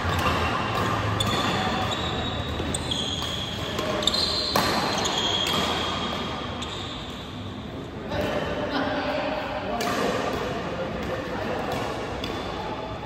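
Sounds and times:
racket hitting shuttlecock: 0.0s - 7.0s, 9.7s - 12.7s
shoes squeaking on court floor: 0.0s - 7.5s.

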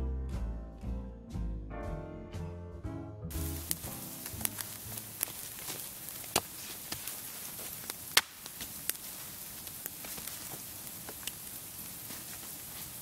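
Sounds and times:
wood fire crackling and popping: 3.3s - 13.0s.

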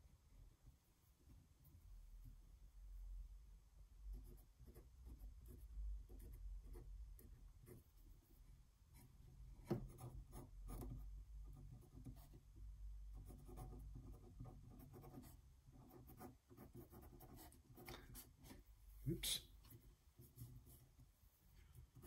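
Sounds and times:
marker scratching on paper: 13.2s - 18.6s.

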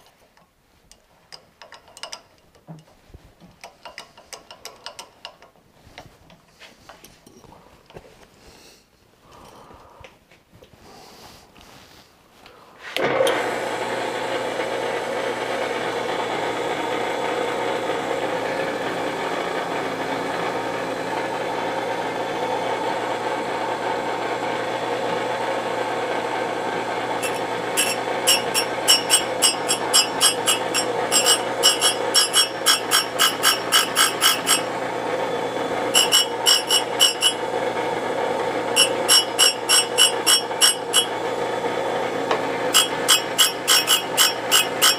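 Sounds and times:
surface grinder running: 13.2s - 44.9s
grinding wheel scraping steel: 26.6s - 44.9s.

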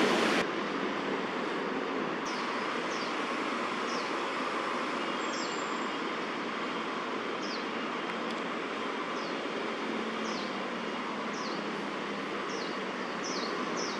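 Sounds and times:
distant city traffic: 0.0s - 13.9s
bird chirping: 5.0s - 5.8s, 10.2s - 10.6s, 11.3s - 11.6s, 12.5s - 13.9s.

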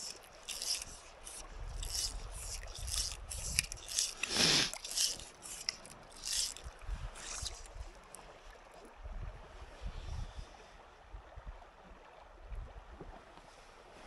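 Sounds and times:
fishing line swishes: 0.0s - 8.0s
water lapping: 0.0s - 9.0s
wind: 0.0s - 14.0s.

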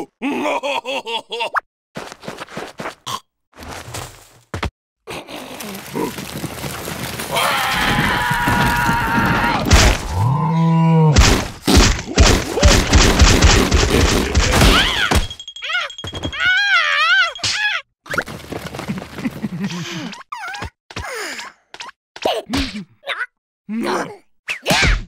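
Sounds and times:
thuds: 11.2s - 15.4s.

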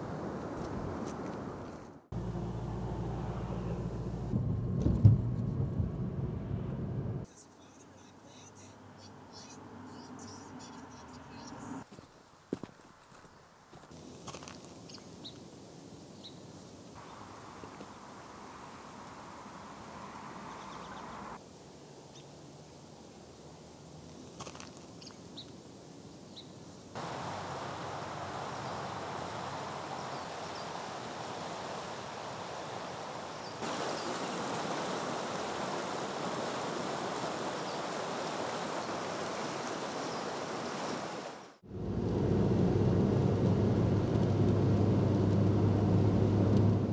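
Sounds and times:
car driving heard from inside: 2.2s - 7.3s, 41.7s - 46.9s
river water rushing: 27.0s - 41.6s.

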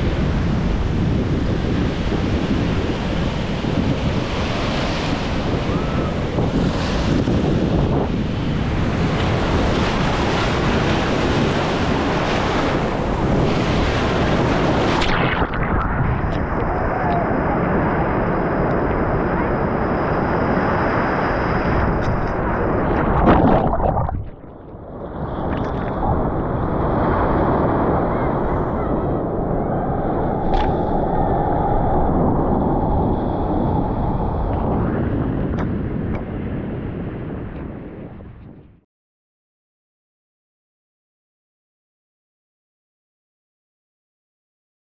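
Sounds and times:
ocean surf: 0.0s - 38.0s
wind buffeting microphone: 0.0s - 38.8s.

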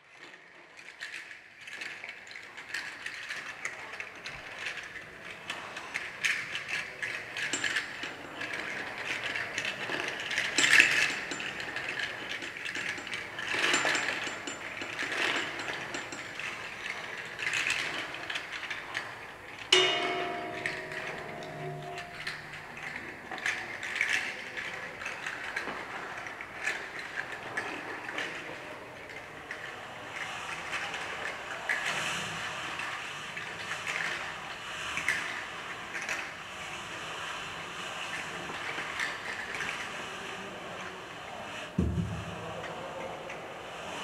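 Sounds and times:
percussion clicking and rattling: 0.1s - 32.8s, 41.7s - 44.0s
ringing pitched note: 19.8s - 23.0s.

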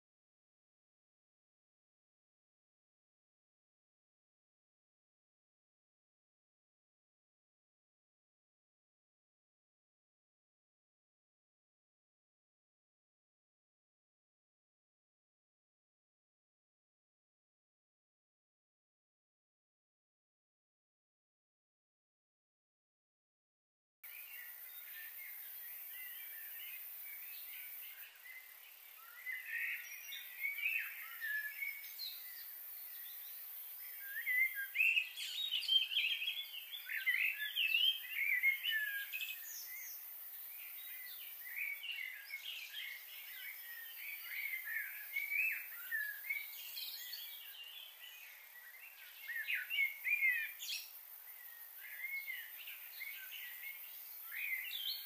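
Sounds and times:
small birds chirping: 24.0s - 55.0s
faint steady hiss: 24.1s - 55.0s.

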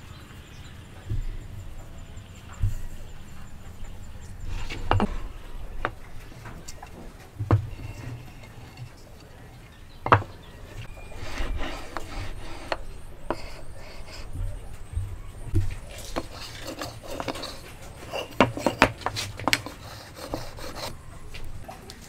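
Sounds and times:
wood sliding against wood: 2.6s - 21.6s
wooden blocks knocking on workbench: 4.7s - 6.0s, 6.9s - 8.8s, 10.0s - 10.8s, 15.1s - 20.9s.

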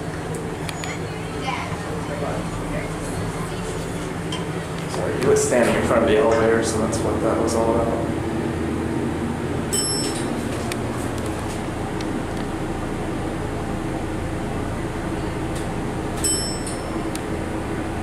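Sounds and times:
elevator hum and rumble: 0.0s - 18.0s
high ringing clicks: 9.7s - 10.4s, 16.2s - 17.2s.

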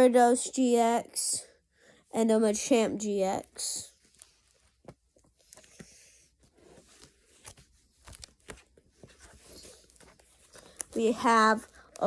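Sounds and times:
plastic sleeves rustling: 3.2s - 12.0s.

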